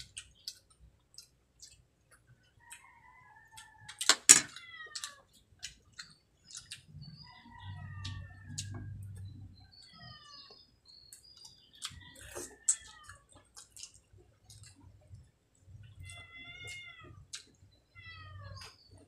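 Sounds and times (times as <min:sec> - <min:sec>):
chewing and lip smacks: 0:00.0 - 0:02.9, 0:05.0 - 0:07.1, 0:11.1 - 0:17.6.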